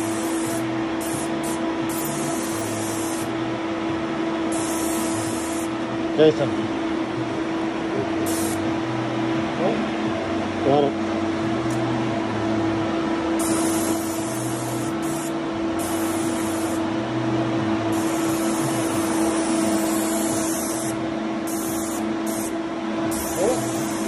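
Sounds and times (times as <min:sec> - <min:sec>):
spray gun hissing: 0:00.0 - 0:03.3, 0:04.5 - 0:05.7, 0:08.2 - 0:08.6, 0:13.4 - 0:16.8, 0:17.9 - 0:24.0
steady hum: 0:00.0 - 0:24.0.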